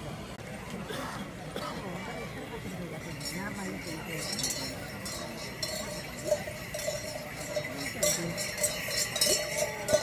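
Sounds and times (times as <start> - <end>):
harness bells jingling: 3.0 - 10.0.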